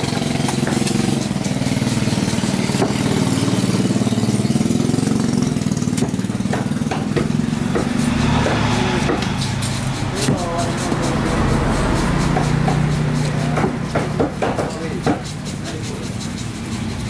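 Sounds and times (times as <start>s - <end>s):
engine idling: 0.0s - 17.0s
cleaver striking chopping block: 2.6s - 3.3s, 5.9s - 11.2s, 12.3s - 15.4s.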